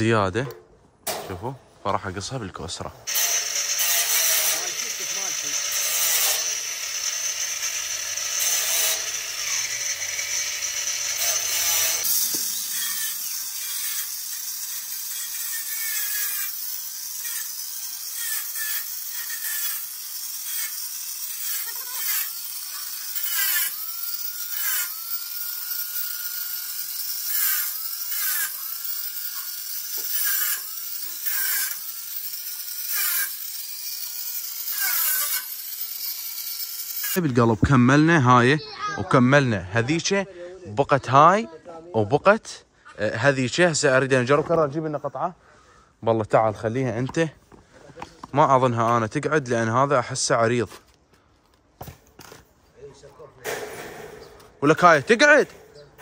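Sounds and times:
angle grinder cutting steel: 0:03.0 - 0:38.2.

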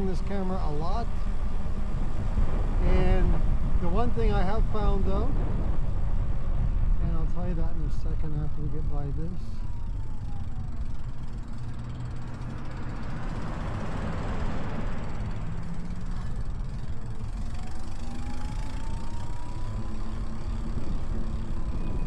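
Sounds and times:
wind and road rumble: 0:00.0 - 0:22.0
faint electric motor whine: 0:09.6 - 0:22.0
pickup truck passing: 0:09.6 - 0:22.0.

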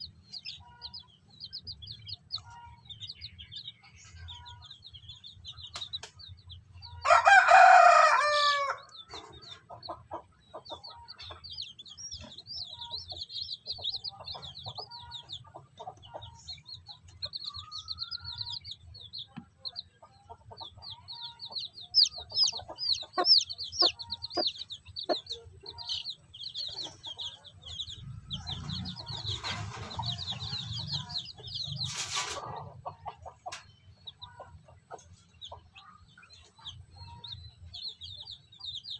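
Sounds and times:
chicks peeping: 0:00.0 - 0:38.9
loud hen call: 0:07.0 - 0:08.8
rooster crowing: 0:07.0 - 0:08.9
hen clucking softly: 0:09.1 - 0:37.4.

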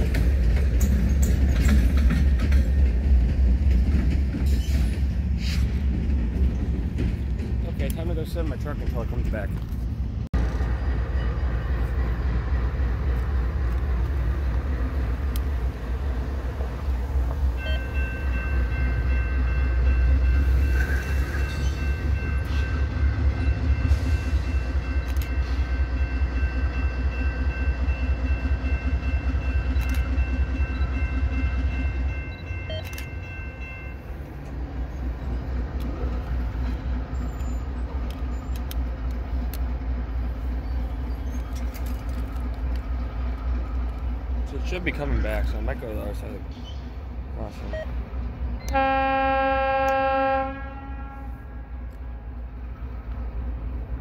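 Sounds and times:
diesel locomotive horn: 0:48.6 - 0:52.3.

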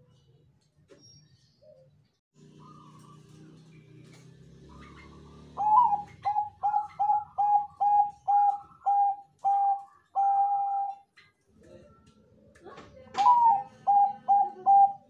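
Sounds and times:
dove cooing: 0:04.6 - 0:11.1, 0:13.2 - 0:15.0.

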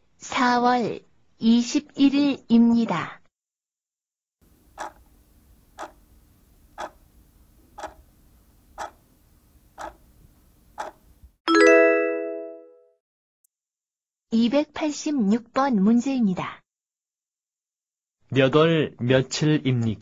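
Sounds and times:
faint steady hum: 0:04.4 - 0:11.4
clock ticking: 0:05.8 - 0:06.0, 0:07.8 - 0:08.0, 0:09.8 - 0:10.0
bright ringing chime: 0:11.5 - 0:12.8.

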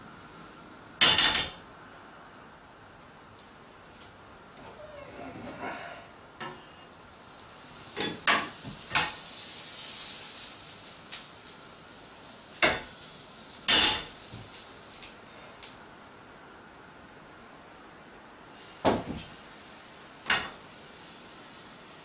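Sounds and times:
butter sizzling in frying pan: 0:06.5 - 0:15.2
pan and metal utensils clattering: 0:13.7 - 0:15.1.

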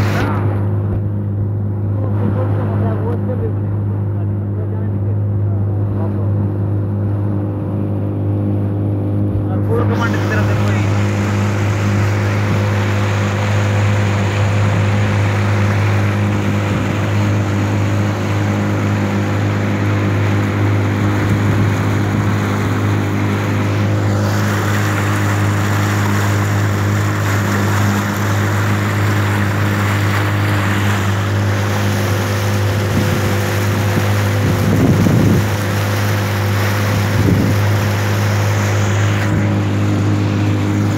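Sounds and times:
wind and water rushing: 0:00.0 - 0:02.3, 0:06.3 - 0:40.9
motorboat engine humming: 0:00.0 - 0:40.9.

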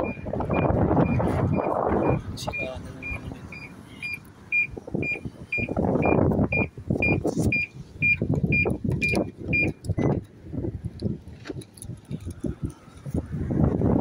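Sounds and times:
car warning chime beeping: 0:00.0 - 0:10.2.

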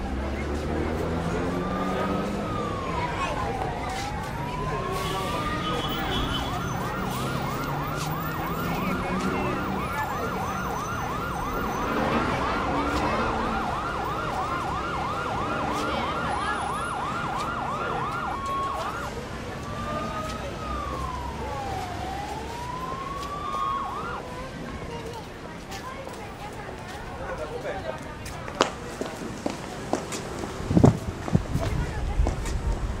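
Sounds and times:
emergency vehicle siren: 0:00.0 - 0:25.4.

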